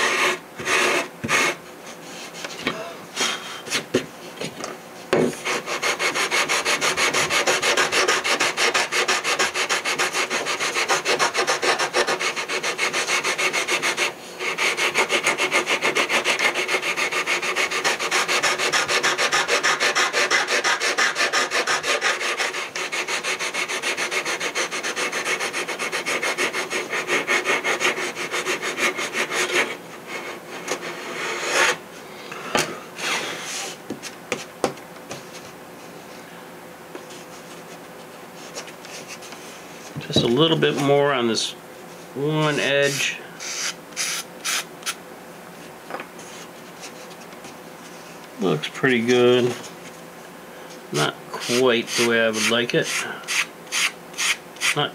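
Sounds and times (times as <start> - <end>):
sandpaper rubbing on wood: 0.0 - 1.6, 5.4 - 31.8, 51.0 - 54.8.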